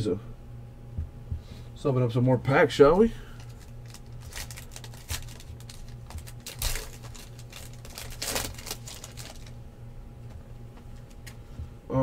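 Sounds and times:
wrappers tearing and crinkling: 3.4s - 9.6s.

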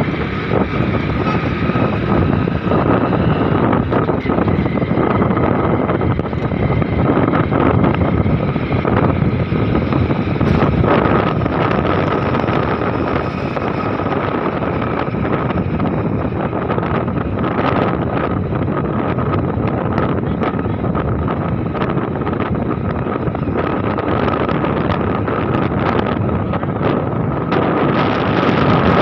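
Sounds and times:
motorcycle engine running: 0.0s - 29.0s
wind noise on microphone: 0.0s - 29.0s.

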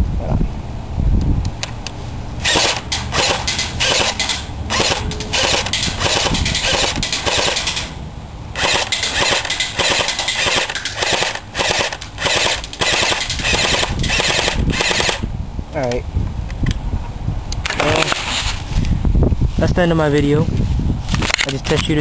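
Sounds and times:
airsoft rifle full-auto bursts: 2.4s - 7.9s, 8.6s - 15.2s.

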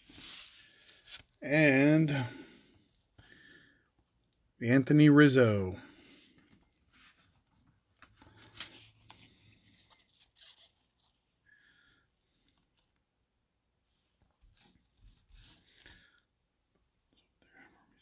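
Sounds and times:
trading cards shuffling: 6.4s - 11.2s.

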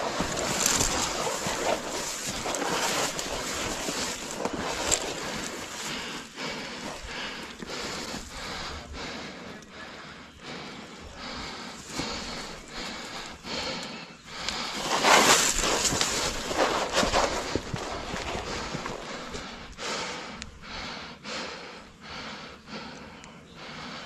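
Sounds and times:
grass rustling against clothing: 0.0s - 8.8s, 11.4s - 13.5s, 14.4s - 19.9s
footfalls in grass: 14.7s - 19.3s.

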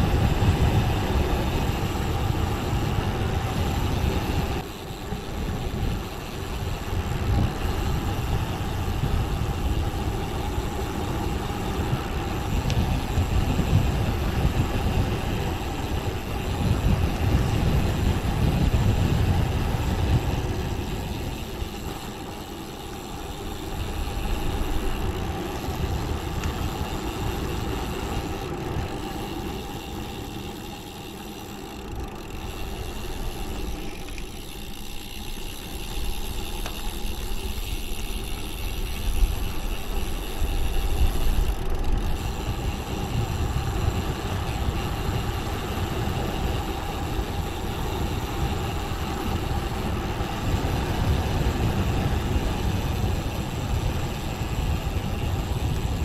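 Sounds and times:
wind rush: 0.0s - 22.0s
bicycle tyre roar: 0.0s - 56.0s.

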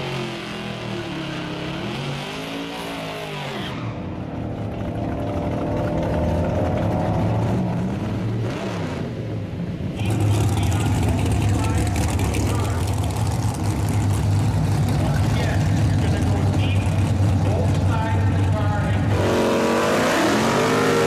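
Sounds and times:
van engine accelerating: 0.0s - 21.0s
low engine rumble: 4.0s - 19.2s.

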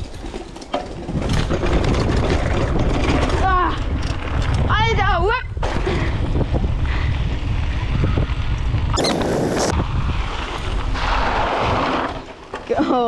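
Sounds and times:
tyres rolling over gravel: 0.0s - 4.7s, 9.6s - 12.9s
wind buffeting microphone: 0.9s - 12.1s.

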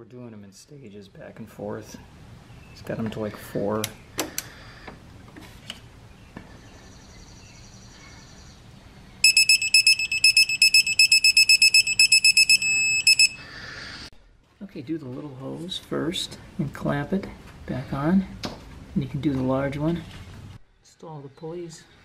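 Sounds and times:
steady tone: 9.2s - 13.4s
torque wrench beeping: 9.2s - 13.4s.

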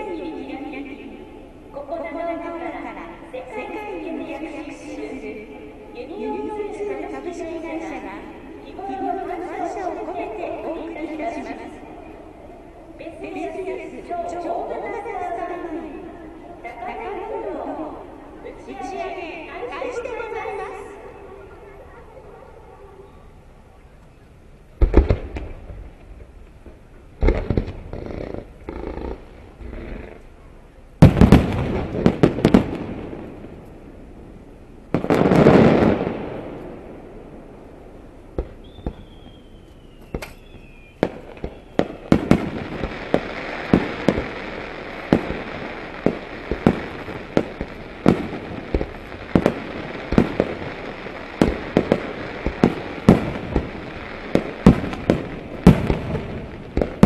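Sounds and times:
fireworks bursting: 24.8s - 57.0s
falling firework whistle: 38.6s - 42.2s.

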